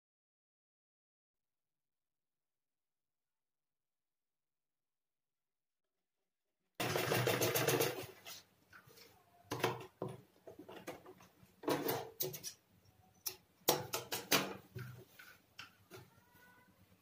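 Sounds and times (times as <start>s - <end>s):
sewing machine stitching: 6.8s - 8.2s.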